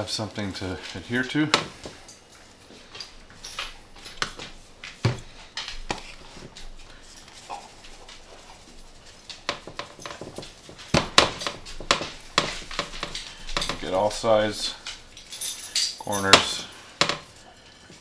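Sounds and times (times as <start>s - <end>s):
seasoning shaker shaken: 6.0s - 11.0s
bottles clattering on glass stove: 9.3s - 18.0s.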